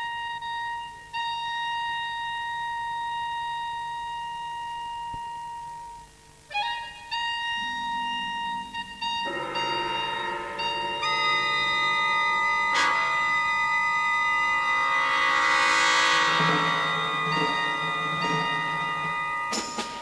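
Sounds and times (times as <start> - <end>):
high woodwind note: 0.0 - 20.0
lower instruments playing: 4.9 - 20.0.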